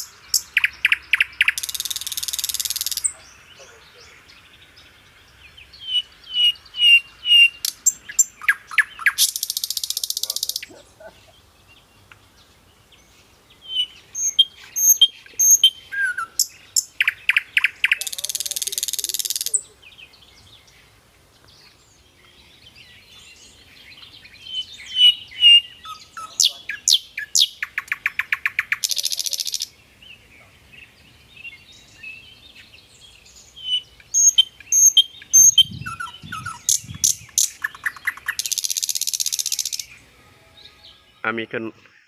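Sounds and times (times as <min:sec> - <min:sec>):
harsh rattling bird call: 0:00.0 - 0:04.4, 0:05.0 - 0:11.1, 0:14.1 - 0:19.6, 0:24.7 - 0:29.7, 0:33.6 - 0:40.1
birds chirping and whistling: 0:00.0 - 0:42.0.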